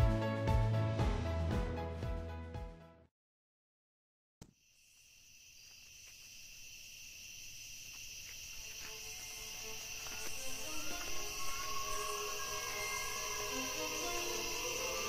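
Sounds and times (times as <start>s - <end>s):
crickets chirping: 4.6s - 15.0s.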